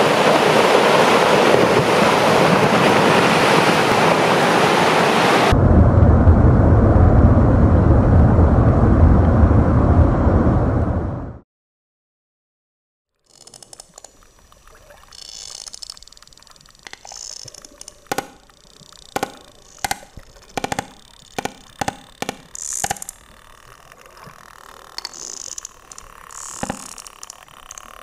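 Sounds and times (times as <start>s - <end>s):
whale clicks underwater: 13.3s - 28.0s.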